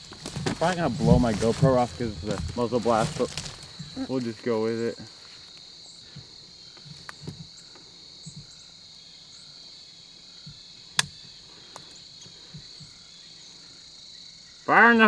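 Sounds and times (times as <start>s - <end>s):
crickets chirping: 0.0s - 15.0s
sharp click: 11.0s - 11.2s.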